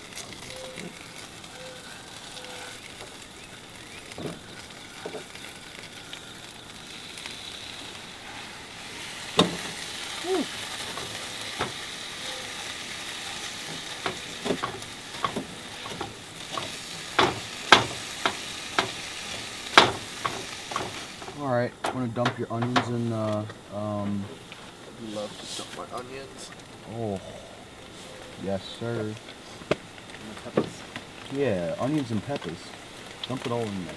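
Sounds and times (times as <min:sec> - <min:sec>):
meat sizzling in a pan: 0:00.0 - 0:33.9
spatula scraping and knocking pan: 0:13.6 - 0:23.0.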